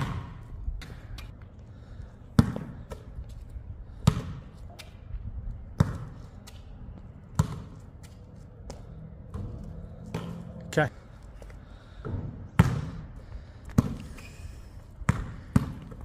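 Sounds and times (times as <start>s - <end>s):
basketball bouncing on hard court: 0.0s - 1.0s, 2.4s - 3.1s, 4.0s - 4.5s, 5.8s - 6.2s, 7.3s - 7.8s, 12.1s - 14.1s, 15.0s - 16.0s.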